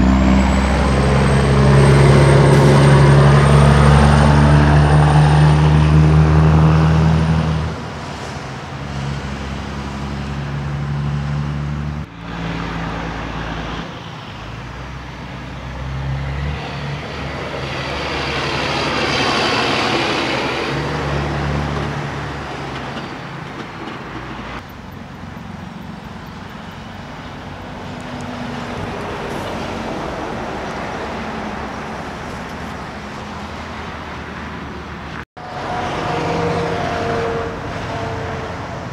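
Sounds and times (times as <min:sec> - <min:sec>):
diesel engine drone: 0:00.0 - 0:38.9
trucks driving past: 0:00.0 - 0:38.9
tyre and traffic noise: 0:00.0 - 0:38.9.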